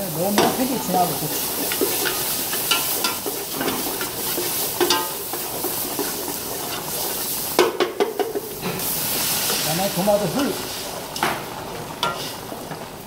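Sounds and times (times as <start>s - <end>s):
food sizzling in a pot: 0.0s - 13.0s.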